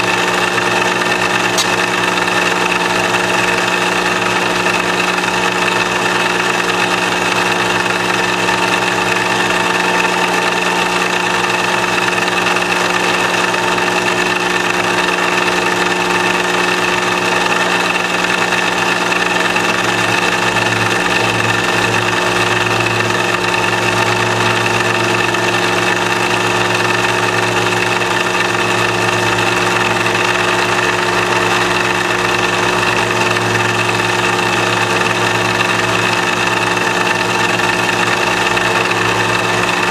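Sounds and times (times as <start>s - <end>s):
steady whine: 0.0s - 6.6s, 7.2s - 39.9s
lathe mechanical hum: 0.0s - 39.9s
deeper hum: 18.3s - 39.9s.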